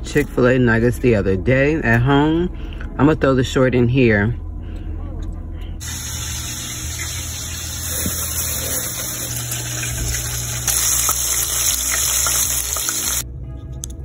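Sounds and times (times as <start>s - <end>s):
food sizzling in hot oil: 5.8s - 13.2s.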